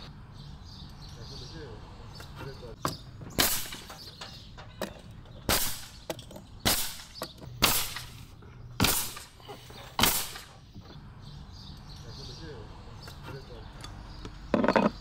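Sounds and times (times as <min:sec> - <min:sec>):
nail gun firing: 0:03.4 - 0:04.1, 0:05.5 - 0:06.0, 0:06.6 - 0:08.2, 0:08.8 - 0:09.4, 0:10.0 - 0:10.6.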